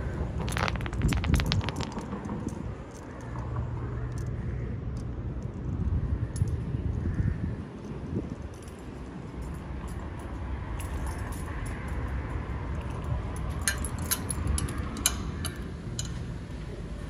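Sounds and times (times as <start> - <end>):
steady low rumble: 0.0 - 10.7.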